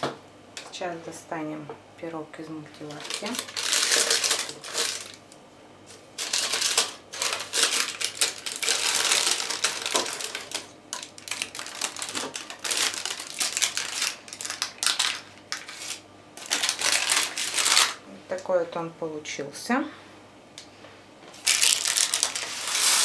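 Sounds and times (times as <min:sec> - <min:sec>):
parchment paper crinkling: 0:02.8 - 0:05.2, 0:06.2 - 0:18.0, 0:21.4 - 0:23.0.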